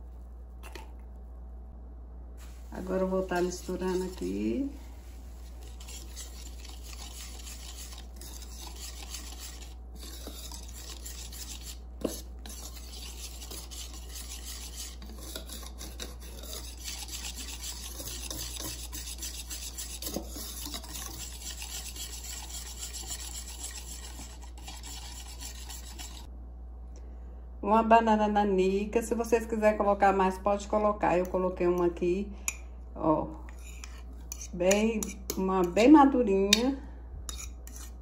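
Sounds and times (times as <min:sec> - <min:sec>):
whisk scraping and swishing in bowl: 0:02.4 - 0:26.3, 0:33.5 - 0:35.7, 0:37.3 - 0:38.0.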